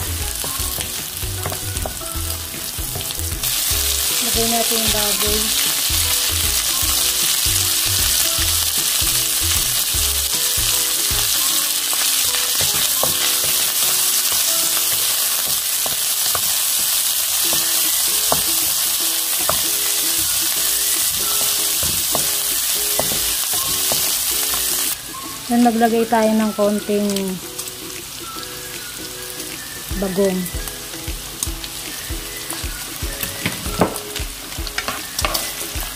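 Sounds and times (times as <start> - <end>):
meat sizzling in a frying pan: 0.0 - 35.9
spatula knocking against pan: 21.1 - 24.1.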